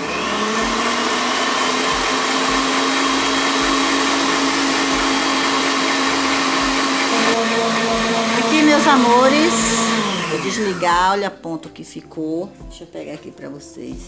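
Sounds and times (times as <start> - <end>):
stand mixer motor whisking: 0.0 - 11.2.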